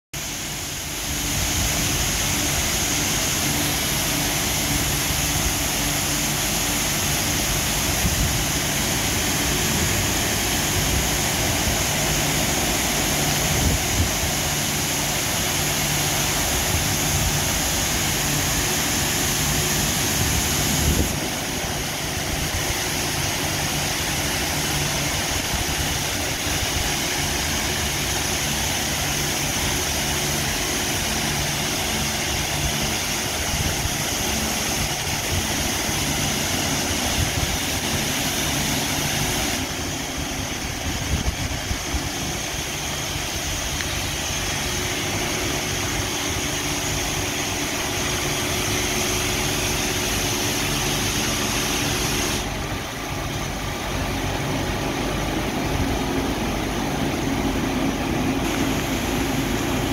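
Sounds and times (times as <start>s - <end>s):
steady low hum: 0.2s - 59.9s
water jets hissing: 0.2s - 59.9s.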